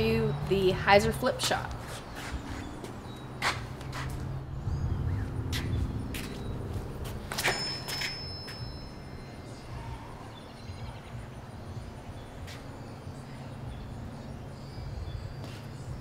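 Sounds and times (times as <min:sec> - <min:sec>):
steady low rumble: 0:03.6 - 0:07.3.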